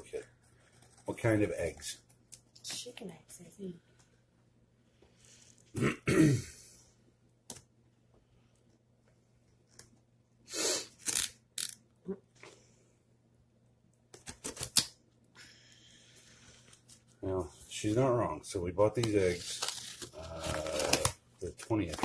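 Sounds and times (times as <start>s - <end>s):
knife cutting packing tape: 11.0s - 11.8s, 19.6s - 21.2s.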